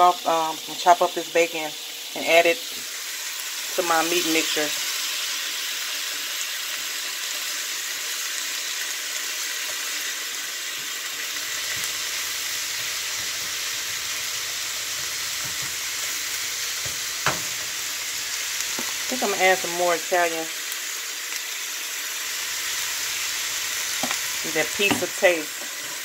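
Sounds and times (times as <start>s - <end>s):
meat and vegetables sizzling: 0.0s - 26.0s
spatula stirring: 23.9s - 26.0s.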